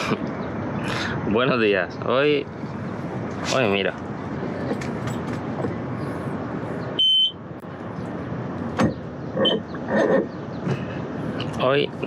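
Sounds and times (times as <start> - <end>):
high electronic warning beep: 7.0 - 7.4, 9.4 - 9.7.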